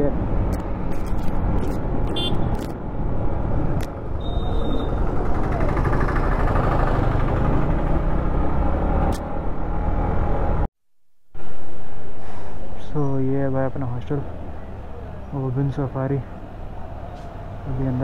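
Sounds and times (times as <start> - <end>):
road noise: 0.0 - 10.7, 11.4 - 18.0
motorcycle engine running: 4.6 - 8.4.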